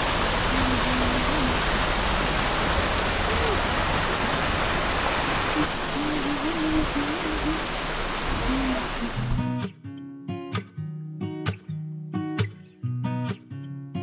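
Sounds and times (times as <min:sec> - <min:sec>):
waterfall rushing and splashing: 0:00.0 - 0:09.5.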